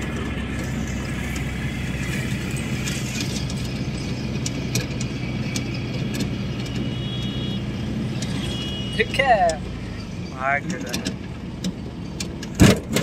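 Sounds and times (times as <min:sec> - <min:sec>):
road noise: 0:00.0 - 0:13.0
vehicle engine humming: 0:00.0 - 0:13.0
light rattles and clicks: 0:10.4 - 0:13.0.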